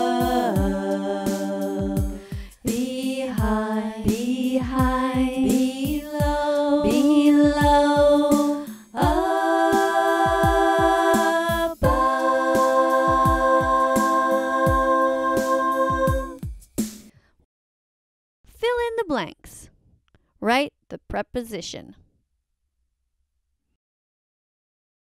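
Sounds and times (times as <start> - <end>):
background music with steady beat: 0.0 - 17.2.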